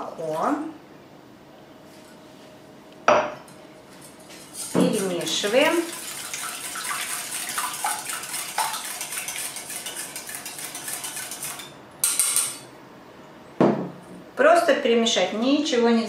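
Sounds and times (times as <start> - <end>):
whisk clinking against metal bowl: 4.3 - 12.7.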